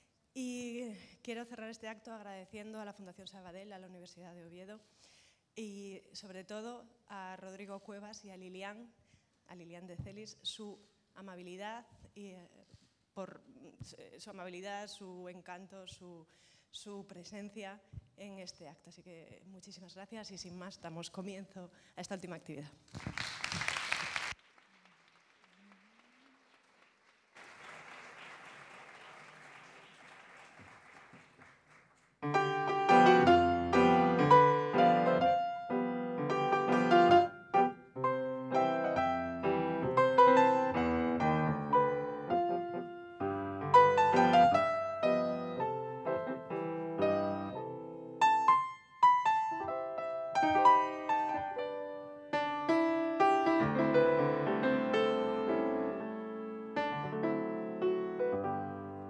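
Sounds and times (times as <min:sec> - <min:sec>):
applause: 0:22.9 - 0:32.2
solo grand piano playing: 0:32.2 - 0:59.0.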